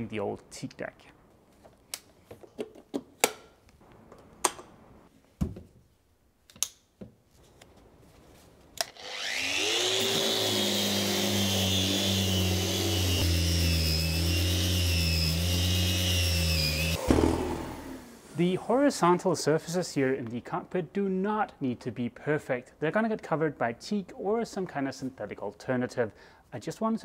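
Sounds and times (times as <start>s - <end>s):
orbital sander running: 8.9s - 18.3s
dust extractor hum: 8.9s - 18.5s.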